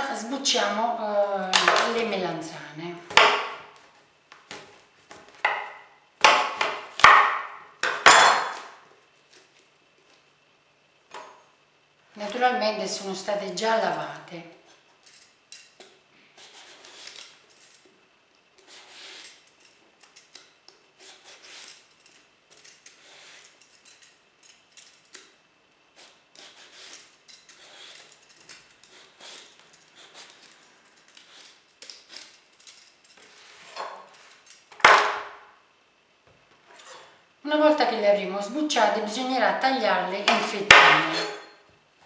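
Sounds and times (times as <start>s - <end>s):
peeler scraping eggplant skin: 15.6s - 17.9s, 18.6s - 24.0s, 25.9s - 32.4s.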